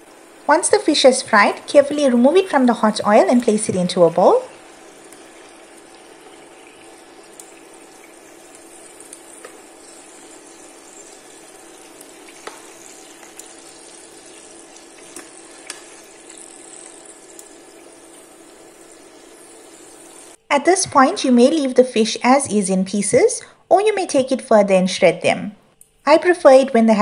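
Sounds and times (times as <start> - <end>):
fish sizzling in hot oil: 0.0 - 20.4
oil popping: 1.5 - 20.4.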